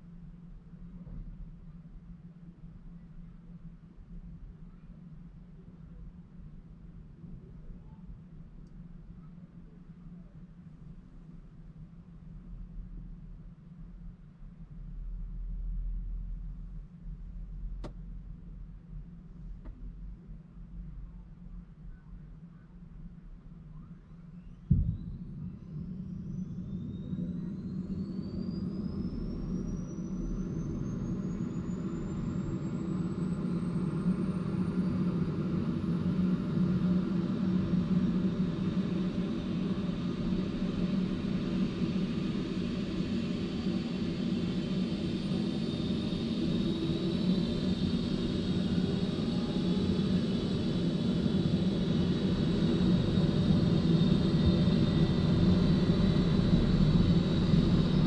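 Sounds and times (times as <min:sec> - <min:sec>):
helicopter turbine whine: 0:24.8 - 0:58.0
low rumble: 0:47.6 - 0:58.0.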